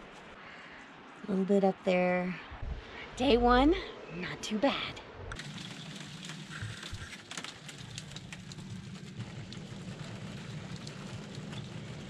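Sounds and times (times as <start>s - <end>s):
low steady hum: 0.0s - 12.0s
snow pattering: 5.4s - 12.0s.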